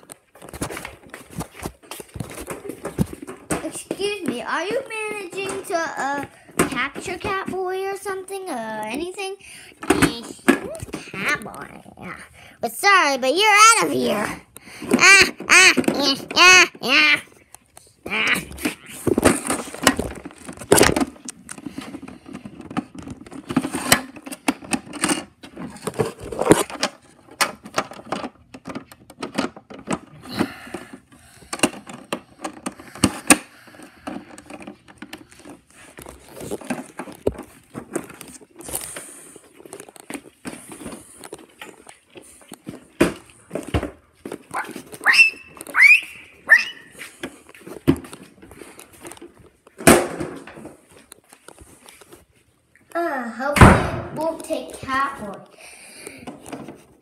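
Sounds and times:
short high squeaks: 0:44.6 - 0:46.9.

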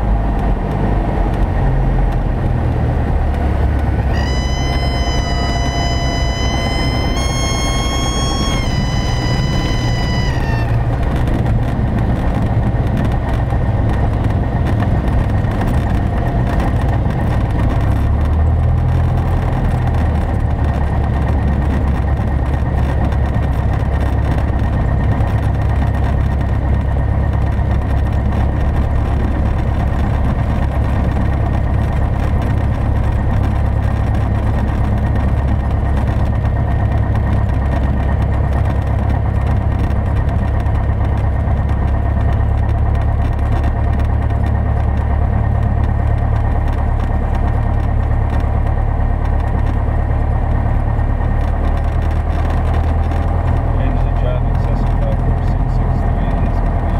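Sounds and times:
aircraft engine idling: 0:03.5 - 0:17.7
stall warning horn: 0:04.0 - 0:11.5.

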